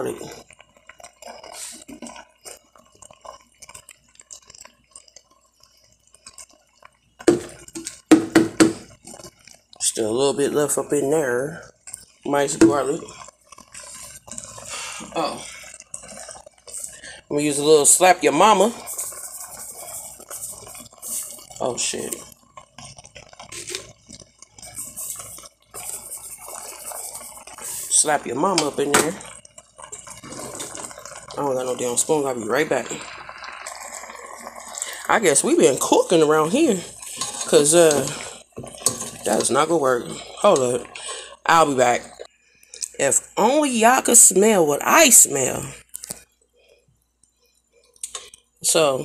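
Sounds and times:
liquid sloshing in a pot: 0.0 - 43.0
spoon knocking against a pot: 8.1 - 8.8.

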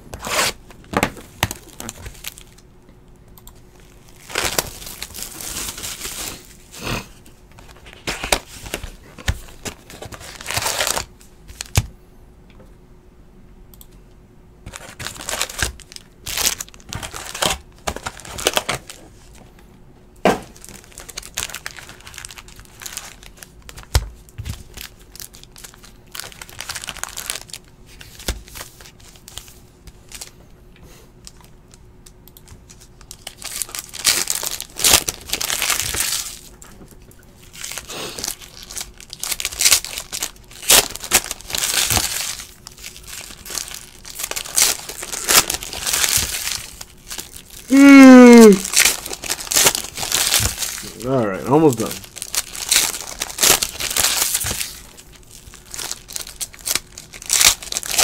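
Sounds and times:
foil wrappers crinkling and tearing: 0.1 - 2.6, 3.7 - 11.9, 14.7 - 19.4, 20.5 - 30.4, 31.2 - 31.8, 32.4 - 58.0
cards rustling: 37.4 - 58.0.

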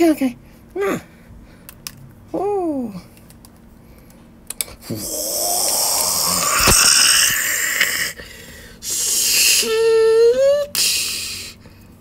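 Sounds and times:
held vocal tone: 4.8 - 8.2
breathy mouth hiss: 4.8 - 9.7.

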